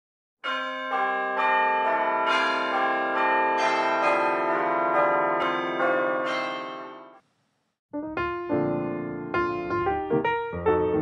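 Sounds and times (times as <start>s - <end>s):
church bells pealing: 0.4s - 7.2s.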